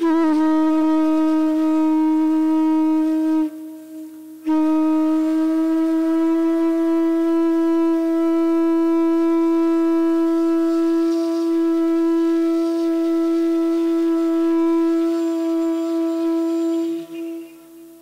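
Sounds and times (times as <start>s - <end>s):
bamboo flute long note: 0.0s - 18.0s.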